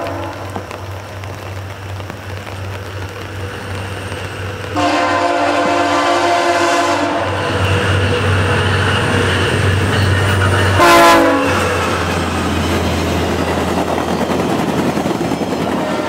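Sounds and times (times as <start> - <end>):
train air horn blast: 0.0 - 0.6, 4.7 - 8.4, 10.7 - 11.8, 15.8 - 16.0
diesel locomotive engine droning: 0.0 - 16.0.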